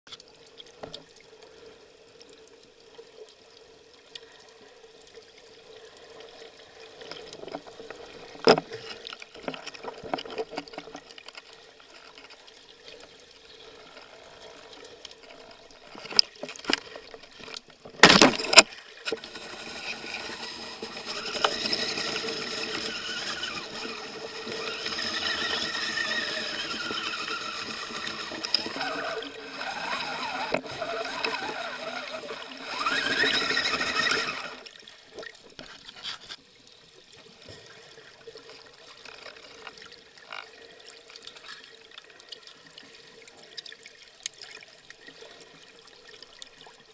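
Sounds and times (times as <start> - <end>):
rush of water: 5.8 - 36.4.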